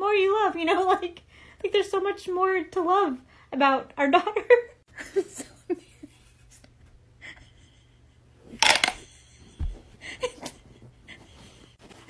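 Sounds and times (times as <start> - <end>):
wooden blocks clattering: 8.6 - 9.0.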